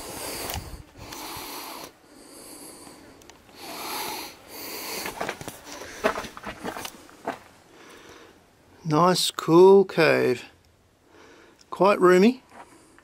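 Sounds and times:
man breathing hard: 0.0s - 6.4s, 7.6s - 8.5s, 11.0s - 11.6s.

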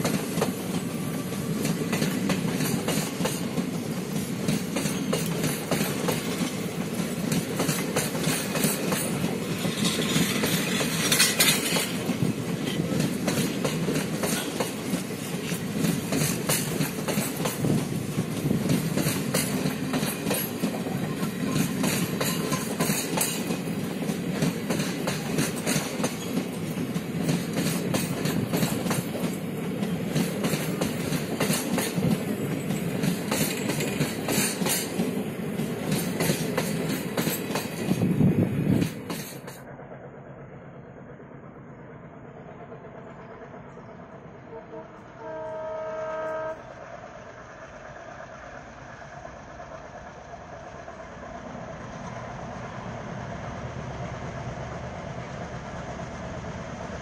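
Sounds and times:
train wheels clattering over rail joints: 0.0s - 39.7s
locomotive horn: 44.4s - 46.7s.

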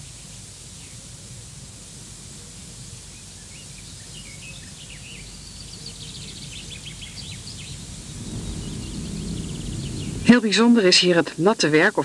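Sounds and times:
small birds chirping: 3.1s - 12.0s
low background rumble: 6.0s - 12.0s.

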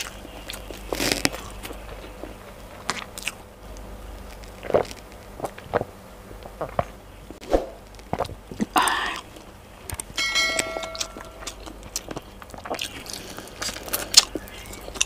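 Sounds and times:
chewing mouth sounds: 0.0s - 7.0s, 10.8s - 15.0s.

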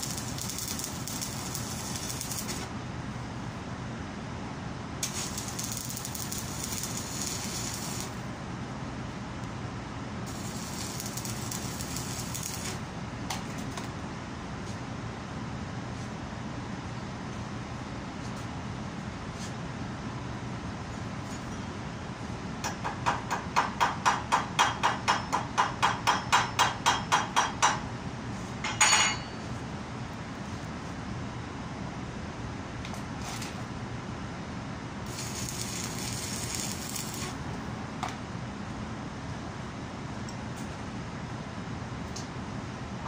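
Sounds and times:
faint hiss: 5.0s - 8.3s, 10.3s - 12.8s
hammer striking cast iron: 22.7s - 27.8s, 28.6s - 29.4s.

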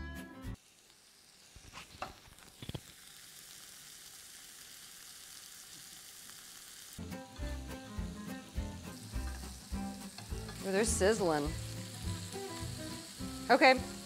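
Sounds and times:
meat sizzling in a frying pan: 0.6s - 14.0s.

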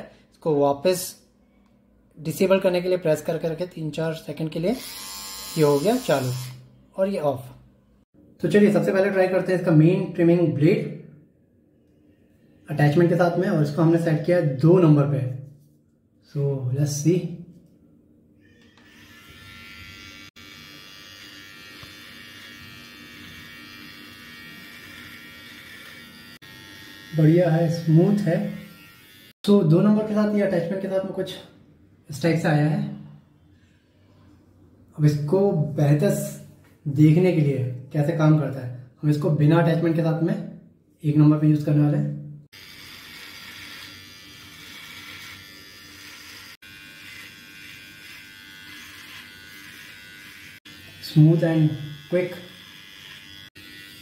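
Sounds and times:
electric trimmer buzzing: 4.8s - 6.6s, 18.7s - 29.4s, 42.5s - 54.0s.

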